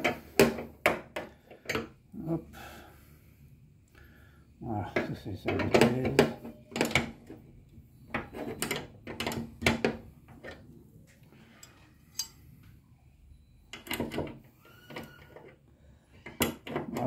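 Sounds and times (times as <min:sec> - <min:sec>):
metallic clicks of hand tools: 0:11.6 - 0:12.4.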